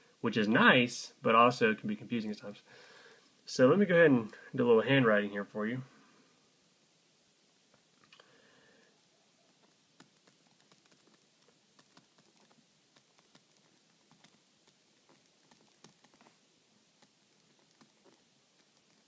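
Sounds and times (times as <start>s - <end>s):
stylus tapping on tablet screen: 9.5s - 16.4s.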